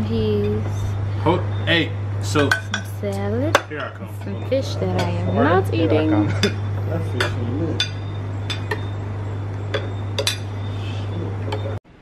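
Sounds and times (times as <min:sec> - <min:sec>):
low hum: 0:00.0 - 0:12.0
cutlery clinking against plates: 0:06.3 - 0:08.9, 0:09.7 - 0:10.5.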